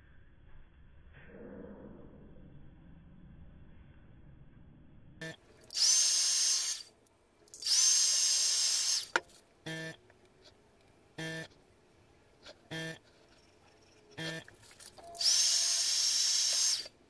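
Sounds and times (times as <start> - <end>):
short buzzes: 7.6 - 10.0, 11.2 - 11.6, 12.7 - 13.1, 14.2 - 17.0
hot-air blower whining: 15.2 - 17.0.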